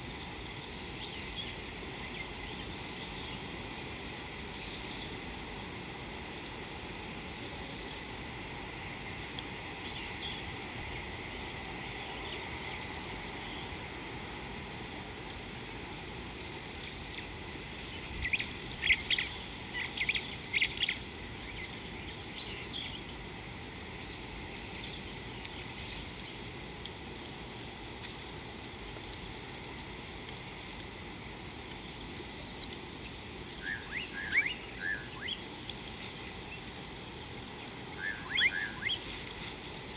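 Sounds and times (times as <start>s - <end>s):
faint outdoor hiss: 0.0s - 39.9s
insect chirping: 0.0s - 39.9s
bird calls: 38.0s - 39.0s.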